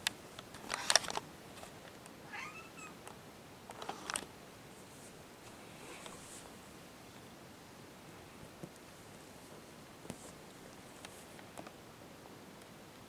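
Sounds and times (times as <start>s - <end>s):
cat meowing: 2.2s - 3.0s
soft taps and rustles: 8.4s - 11.8s.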